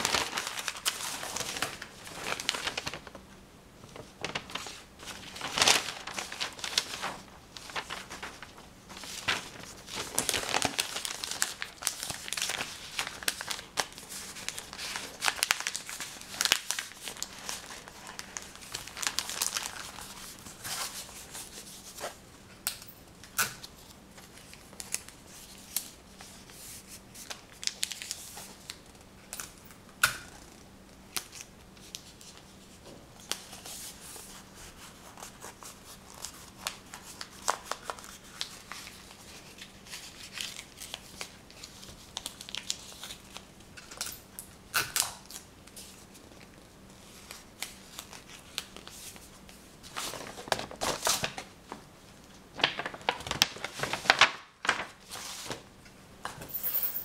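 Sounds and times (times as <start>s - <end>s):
rustling: 3.8s - 13.6s.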